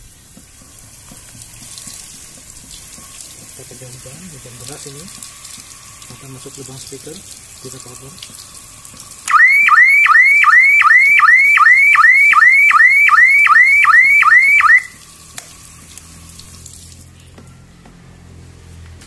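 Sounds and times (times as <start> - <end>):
water spraying on plastic: 0.0 - 19.0
alarm siren whooping: 9.3 - 15.0.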